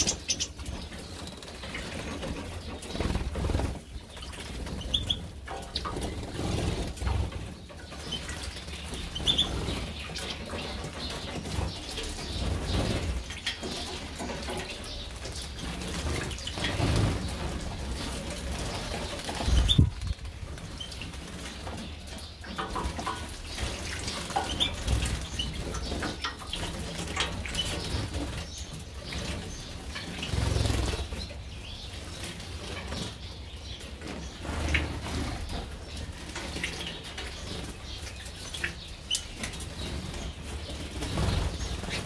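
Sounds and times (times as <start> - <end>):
wings flapping in water: 0.0 - 31.3.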